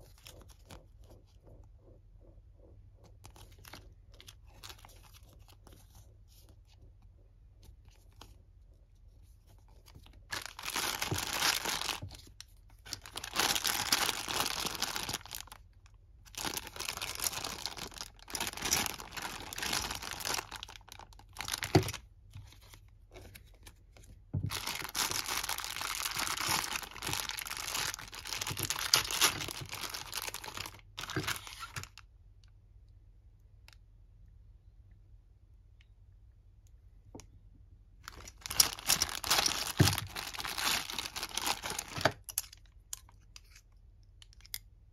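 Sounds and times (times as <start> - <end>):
plastic bag crinkling and tearing: 9.8 - 15.7, 16.3 - 22.0, 24.4 - 32.0, 38.0 - 42.6.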